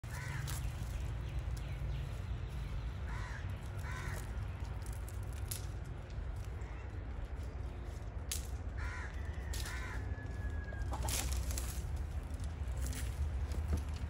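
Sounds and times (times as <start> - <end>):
harsh bird calls: 0.0 - 5.1.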